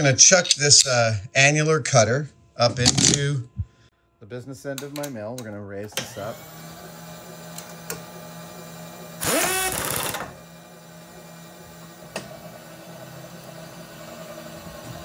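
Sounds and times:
machine mechanism rattling whir: 9.2 - 10.5.

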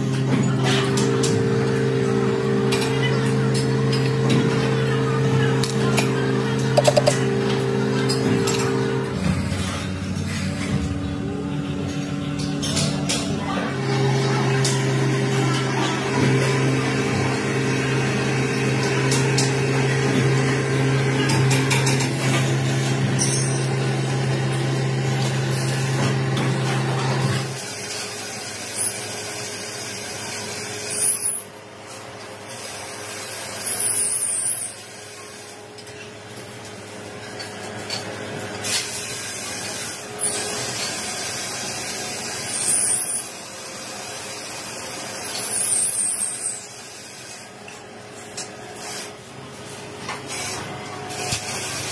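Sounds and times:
machine motor humming: 0.0 - 9.5
noisy background: 0.0 - 27.6.

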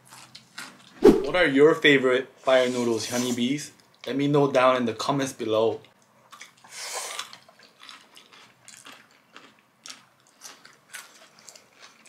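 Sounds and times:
wet chewing and mouth smacks: 6.3 - 12.0.

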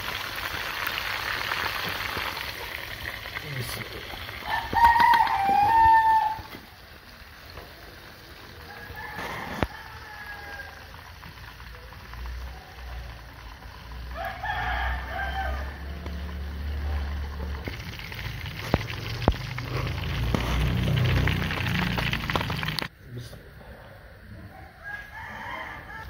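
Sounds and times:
rooster crowing: 4.4 - 6.7, 8.5 - 11.1, 13.9 - 17.6, 24.4 - 26.0.

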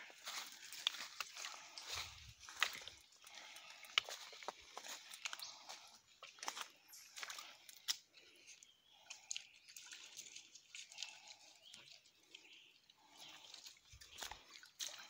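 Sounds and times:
footsteps on stony trail: 0.0 - 8.0.

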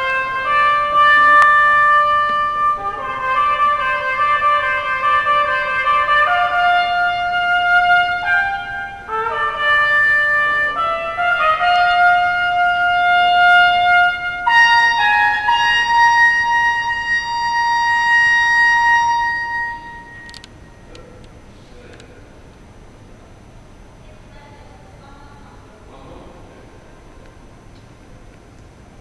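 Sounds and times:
trumpet long held notes: 0.0 - 20.8.

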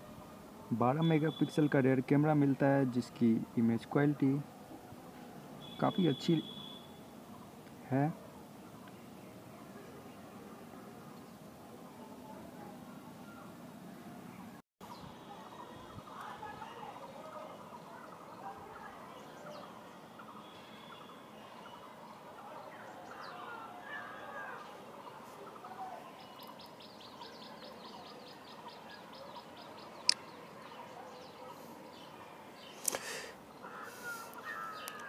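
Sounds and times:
faint birds chirping: 0.0 - 35.0.

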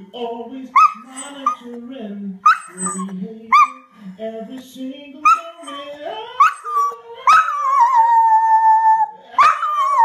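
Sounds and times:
dog howling: 2.5 - 3.8, 5.3 - 10.0.

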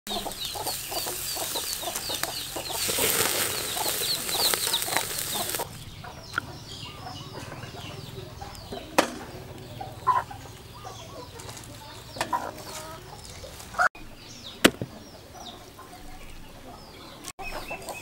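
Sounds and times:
meat sizzling on a grill: 0.1 - 5.8
chickens clucking and chirping: 0.1 - 18.0
sharp knock: 14.6 - 15.0.

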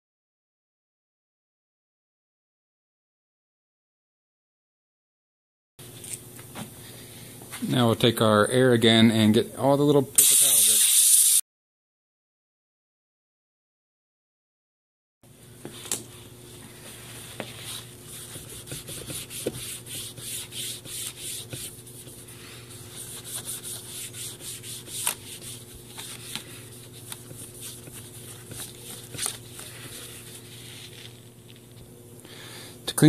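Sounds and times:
paper towel wiping laptop keys: 16.7 - 31.2.

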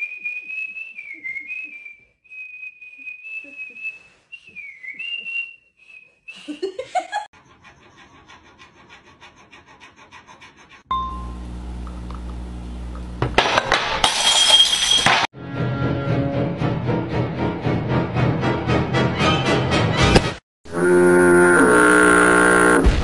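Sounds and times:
person whistling a tune: 0.0 - 6.7.

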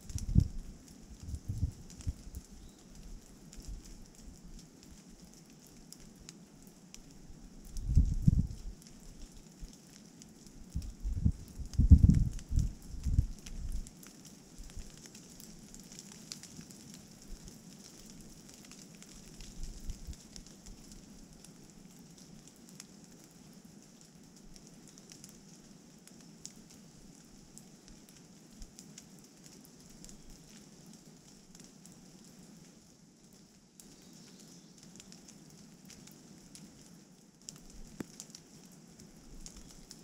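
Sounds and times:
low rumble of wind: 0.0 - 22.8
light rain pattering on leaves: 0.0 - 40.0.

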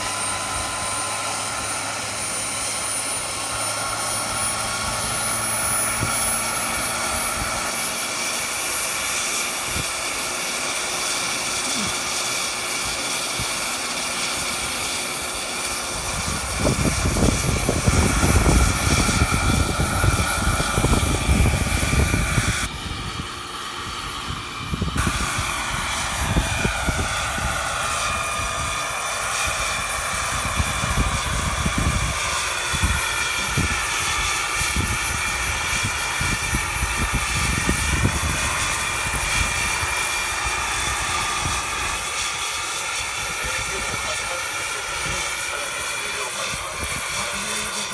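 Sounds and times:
model helicopter turbine whine: 0.0 - 47.9
gusty low rumble: 16.0 - 28.9, 30.0 - 33.9, 34.7 - 40.0.

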